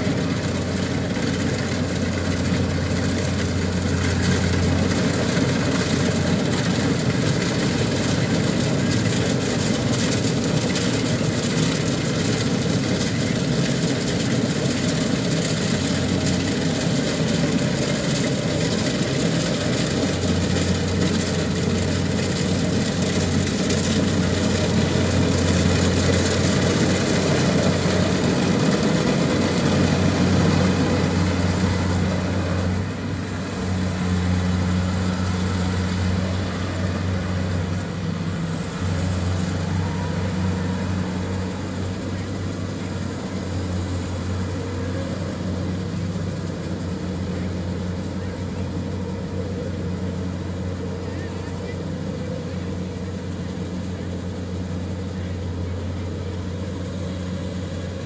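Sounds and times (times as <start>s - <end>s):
combine harvester mechanical drone: 0.0s - 58.0s.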